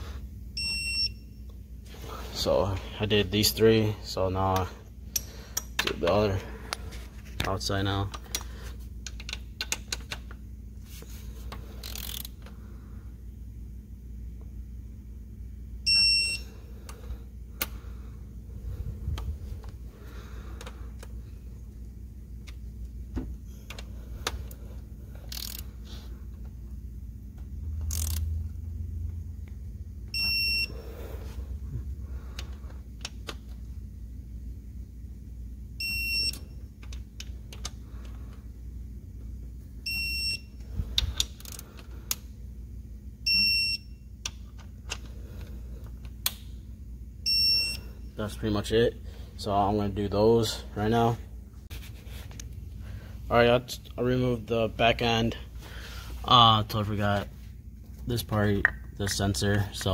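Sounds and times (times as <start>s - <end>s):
wrench clicks: 9.0s - 10.3s, 11.8s - 12.4s, 25.2s - 25.6s, 27.8s - 28.3s, 41.0s - 42.2s
torque wrench beeping: 15.9s - 16.5s.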